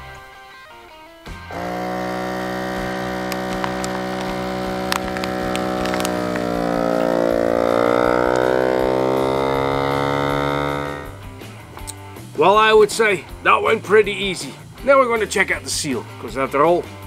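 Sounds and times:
vacuum sealer pump humming: 0:01.5 - 0:11.5.

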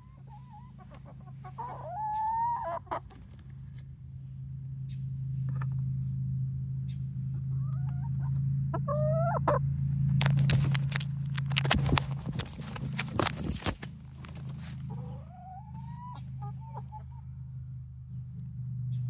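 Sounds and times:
young hen calling: 0:00.0 - 0:03.4, 0:07.5 - 0:09.6, 0:14.6 - 0:17.2
steady low hum: 0:00.0 - 0:19.0
sharp crackles and knocks: 0:10.1 - 0:14.9.

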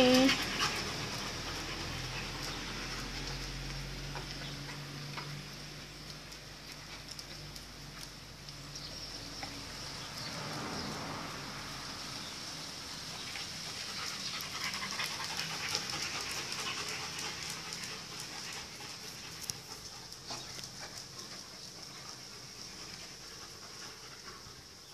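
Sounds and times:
dog panting: 0:00.0 - 0:05.4, 0:13.1 - 0:24.9.

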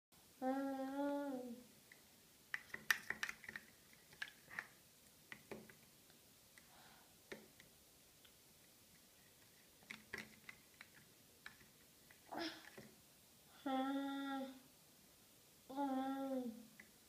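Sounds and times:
person humming: 0:00.4 - 0:01.6, 0:13.6 - 0:14.6, 0:15.7 - 0:16.6.

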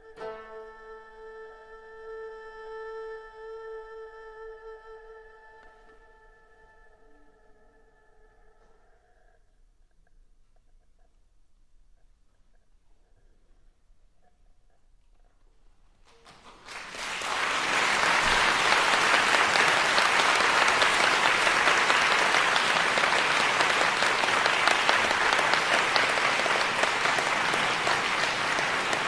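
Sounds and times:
audience applause: 0:16.1 - 0:29.0.

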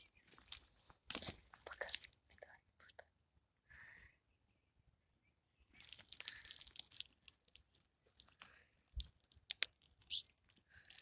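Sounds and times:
pine needles and twigs crunching: 0:00.0 - 0:02.2, 0:05.7 - 0:11.0.

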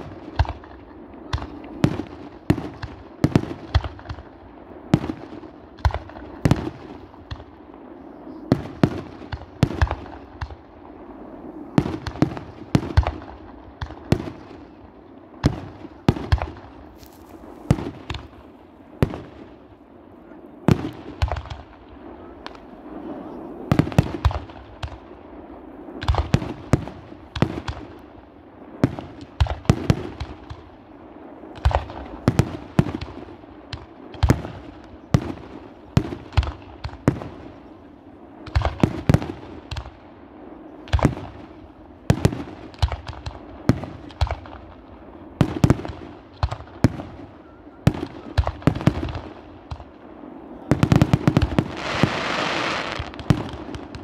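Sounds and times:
fireworks bangs: 0:00.0 - 0:28.0, 0:28.6 - 0:54.0
fireworks hissing crackle: 0:08.5 - 0:19.8, 0:47.9 - 0:54.0.

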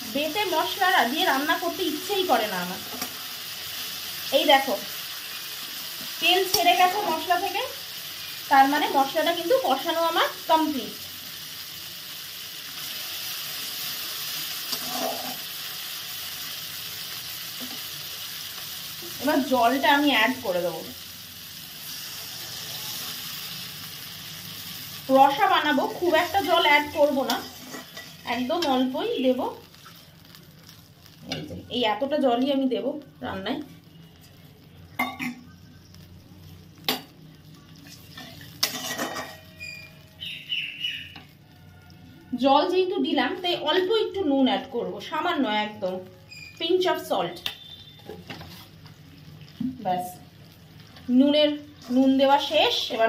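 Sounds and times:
paste sizzling in hot oil: 0:00.0 - 0:53.0
spatula stirring and scraping: 0:14.7 - 0:15.5, 0:27.3 - 0:28.8, 0:29.7 - 0:31.5, 0:37.8 - 0:39.7, 0:47.6 - 0:49.0.

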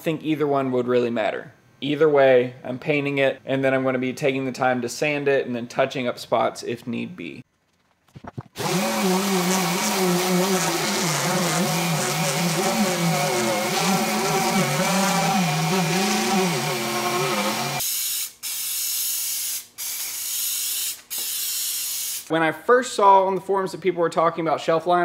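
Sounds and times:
orbital sander running: 0:08.5 - 0:17.8.

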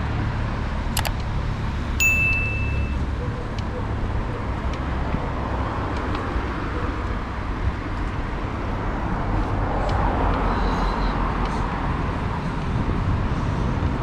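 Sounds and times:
rumble of cars: 0:00.0 - 0:14.0
faint high tone: 0:02.0 - 0:03.0.

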